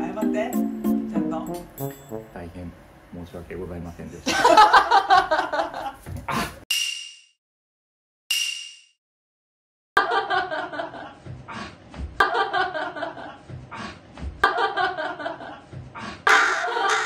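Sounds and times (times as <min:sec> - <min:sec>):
music: 0:00.0 - 0:02.5
people chuckling and laughing: 0:10.0 - 0:17.0.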